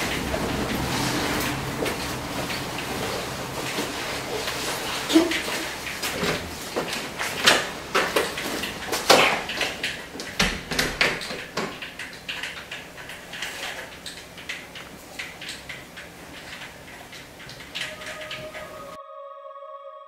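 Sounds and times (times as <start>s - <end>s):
footsteps: 0.0s - 10.4s
door opening and shutting: 0.0s - 19.0s.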